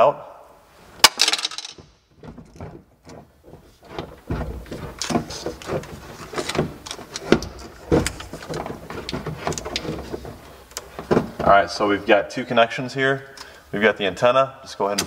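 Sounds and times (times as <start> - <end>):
clicks and bumps: 1.0 - 11.5.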